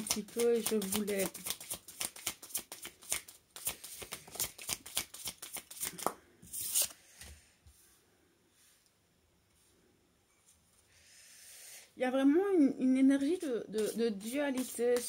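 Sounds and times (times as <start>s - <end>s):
cards being shuffled: 0.0s - 7.0s, 13.8s - 15.0s.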